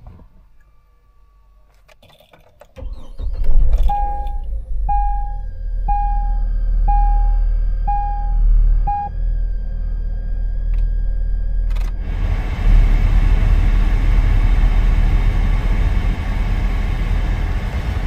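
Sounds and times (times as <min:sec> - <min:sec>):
low rumble: 0:02.8 - 0:18.0
dashboard warning chime: 0:03.8 - 0:09.2.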